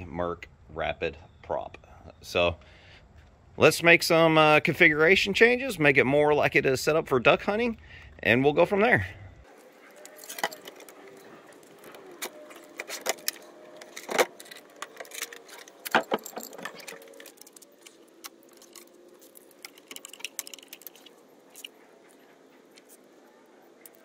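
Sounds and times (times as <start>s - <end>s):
metal gear clinking and rattling: 9.5s - 24.0s.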